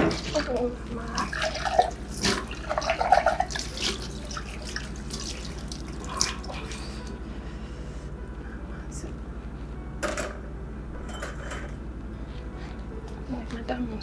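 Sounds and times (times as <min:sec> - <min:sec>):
tap water running into sink: 0:00.0 - 0:06.5
glass and dishes clinking: 0:11.0 - 0:11.8.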